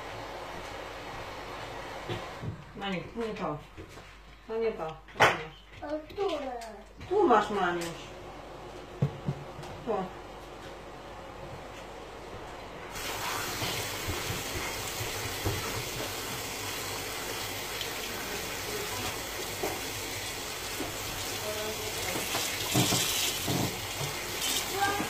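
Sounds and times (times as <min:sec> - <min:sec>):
water running into sink: 0:12.9 - 0:25.0.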